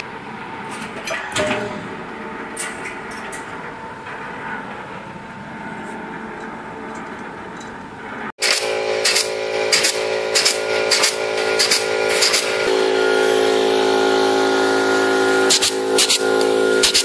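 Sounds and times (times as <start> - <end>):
steady hum: 0.0 - 17.0
pneumatic ring gun snapping: 8.4 - 12.6, 15.5 - 17.0.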